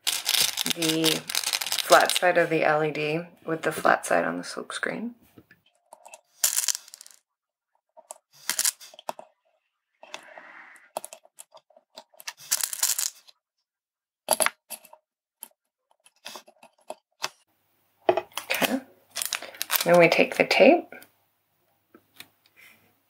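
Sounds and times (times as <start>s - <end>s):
plastic parts rustling and clicking: 0.0s - 2.4s, 5.6s - 7.2s, 8.0s - 9.4s, 10.9s - 13.4s, 14.3s - 17.4s, 18.1s - 20.2s.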